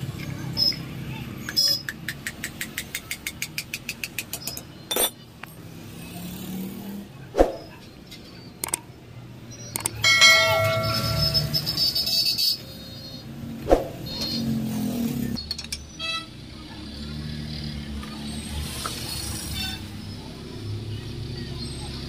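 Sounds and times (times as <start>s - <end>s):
steady multi-pitch tone: 10.0s - 12.0s.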